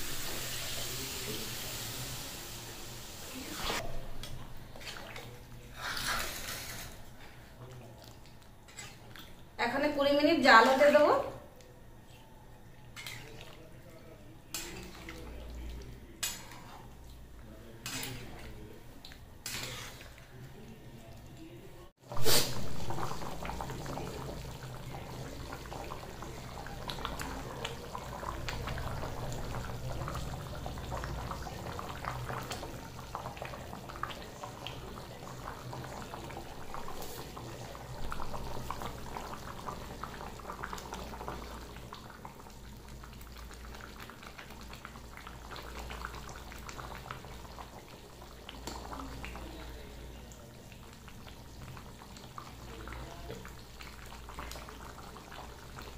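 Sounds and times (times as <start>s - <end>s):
thick gravy bubbling: 11.9s - 55.9s.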